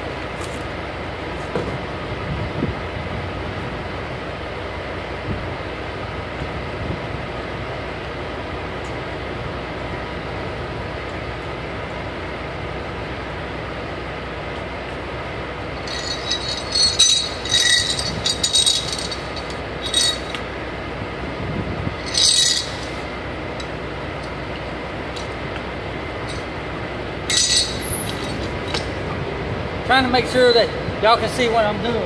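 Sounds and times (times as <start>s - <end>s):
steady background rumble: 0.0s - 32.0s
metallic clinks and rattles: 15.8s - 20.5s, 22.0s - 24.4s, 26.2s - 26.5s, 27.3s - 29.0s.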